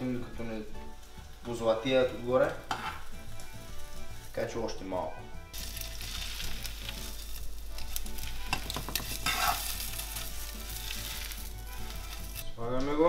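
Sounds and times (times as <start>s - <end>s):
bread sizzling in frying pan: 0.0s - 12.5s
fork scraping a pan: 2.7s - 3.0s, 8.2s - 12.4s.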